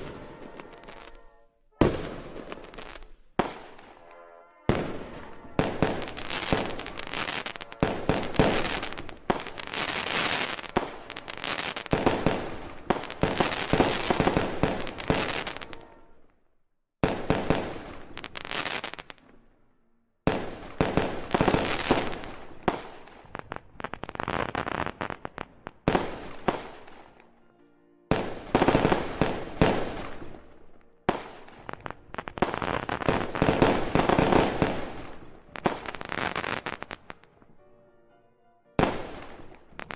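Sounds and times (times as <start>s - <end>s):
fireworks bursting and crackling: 0.0s - 16.0s, 17.0s - 19.3s, 20.3s - 27.2s, 28.1s - 37.3s, 38.8s - 39.9s.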